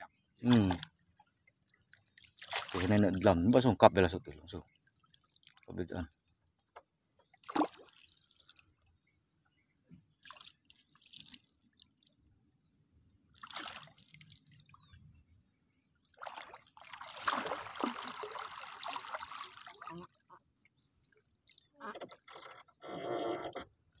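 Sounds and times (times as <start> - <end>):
water splashing and dripping: 0.5 - 0.9, 1.5 - 3.2, 4.9 - 5.8, 7.4 - 8.6, 10.2 - 12.1, 13.3 - 14.8, 16.0 - 20.1.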